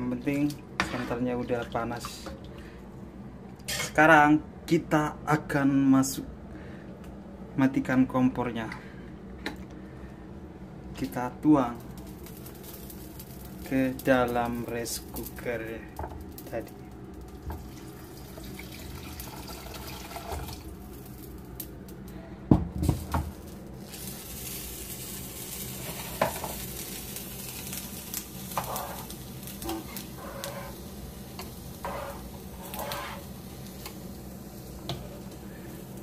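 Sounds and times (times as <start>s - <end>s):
liquid pouring into bowl: 17.6s - 20.7s.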